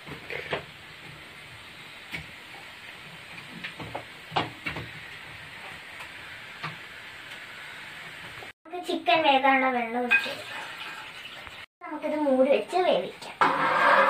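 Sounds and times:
stove hissing: 0.0s - 8.6s, 12.9s - 14.0s.

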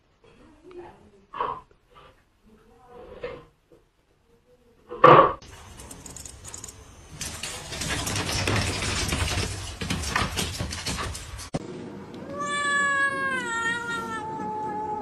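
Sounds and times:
rustling and clattering: 5.4s - 11.6s
cat meowing: 12.2s - 15.0s.

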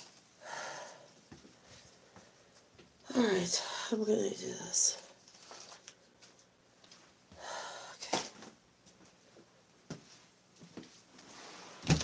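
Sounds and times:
person exhaling: 7.4s - 8.2s.

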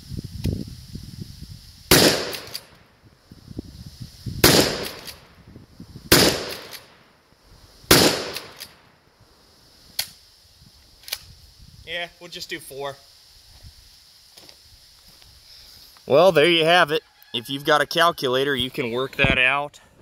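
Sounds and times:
shotgun shots: 1.9s - 2.7s, 4.4s - 5.2s, 6.1s - 7.0s, 7.9s - 8.7s.

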